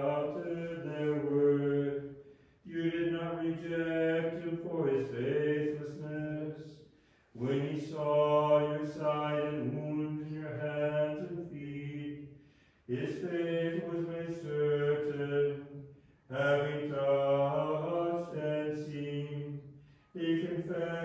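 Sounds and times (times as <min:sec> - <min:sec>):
unaccompanied liturgical chanting: 0:00.0 - 0:21.0.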